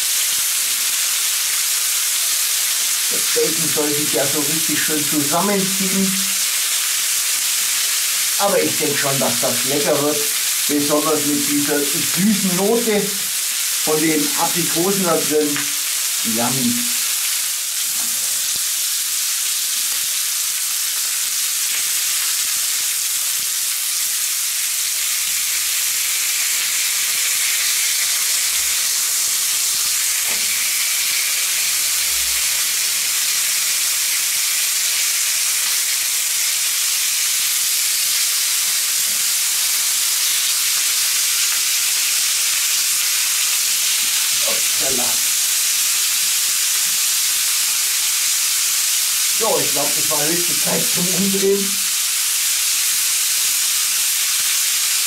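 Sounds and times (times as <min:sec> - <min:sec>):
meat frying on griddle: 0:00.0 - 0:55.0.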